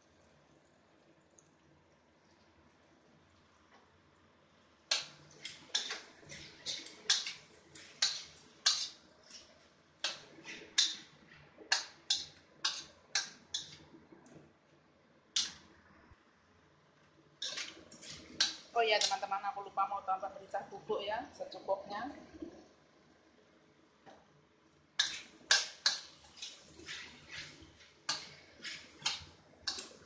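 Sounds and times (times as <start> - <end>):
metal spatula scraping a wok: 4.9 - 13.9, 17.4 - 19.3, 25.0 - 30.0.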